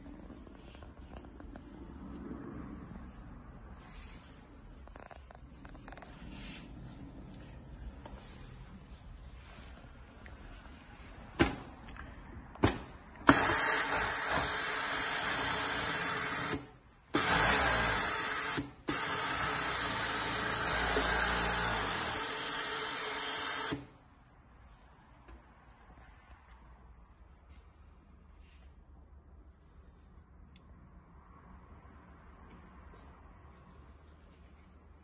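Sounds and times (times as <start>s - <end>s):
overlock machine whirring: 12.6s - 23.9s.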